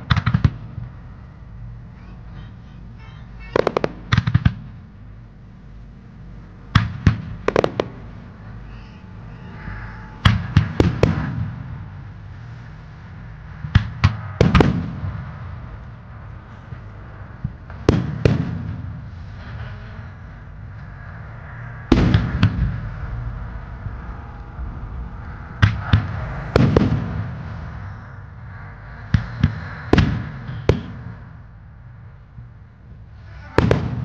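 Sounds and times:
firework shells bursting: 3.4s - 4.7s, 6.7s - 11.8s.

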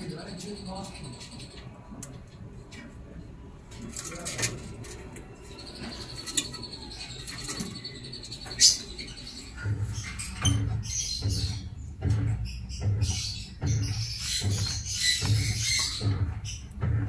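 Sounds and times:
lovebirds chirping: 0.0s - 2.0s, 4.0s - 17.0s
high rapid bird trill: 5.4s - 11.8s
low bumping and rustling: 9.6s - 17.0s.

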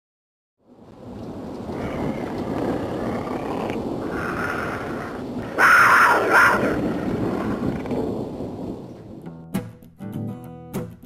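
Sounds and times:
steady rumbling roar: 0.8s - 8.9s
animal-like call: 1.7s - 7.9s.

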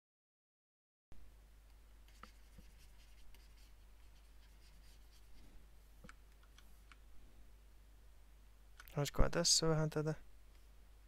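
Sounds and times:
low electrical hum: 1.2s - 11.0s
stylus scratching on tablet: 2.1s - 5.4s.

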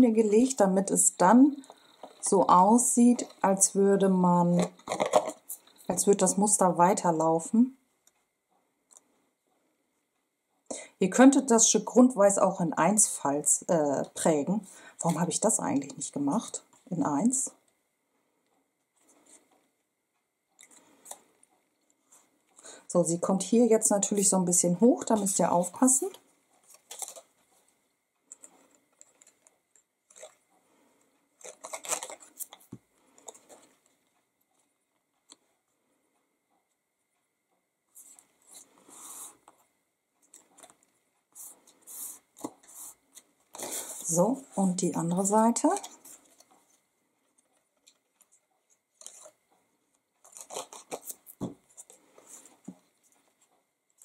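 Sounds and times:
rustling and scraping of cardstock: 19.0s - 19.7s, 37.9s - 44.6s, 45.6s - 49.4s, 50.2s - 54.0s.

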